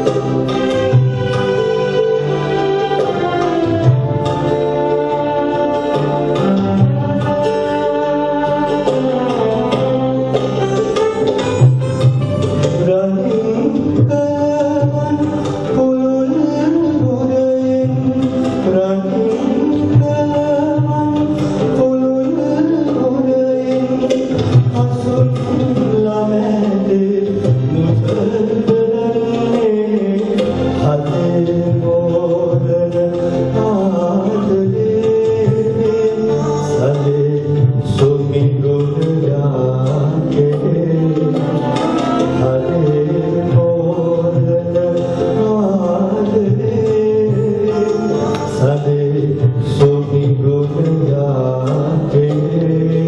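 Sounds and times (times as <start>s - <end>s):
instrumental accompaniment with violin: 0.0s - 53.0s
man singing into a microphone: 12.6s - 53.0s.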